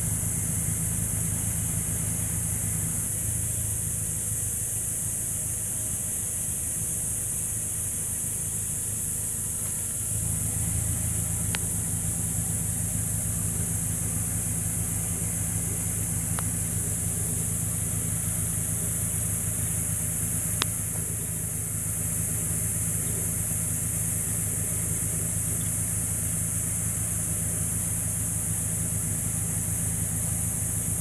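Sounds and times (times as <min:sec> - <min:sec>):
car engine idling: 0:00.0 - 0:31.0
faint sharp clicks: 0:16.3 - 0:16.5, 0:20.6 - 0:20.8.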